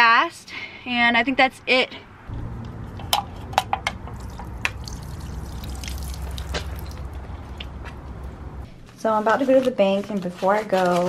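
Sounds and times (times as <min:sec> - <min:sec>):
low steady rumble: 0:02.2 - 0:08.9
drops splashing: 0:02.6 - 0:08.6
liquid pouring into puddle: 0:04.1 - 0:07.2.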